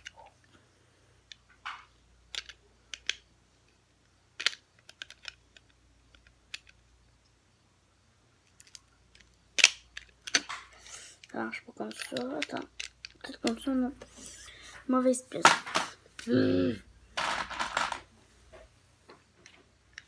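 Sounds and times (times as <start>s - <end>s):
plastic bricks clicking: 1.3s - 3.8s, 4.4s - 6.9s, 8.4s - 13.7s, 17.2s - 18.1s.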